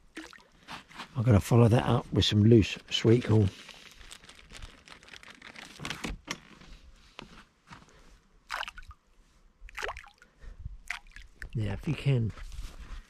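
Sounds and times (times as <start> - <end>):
bait bag rustling: 3.0 - 6.8.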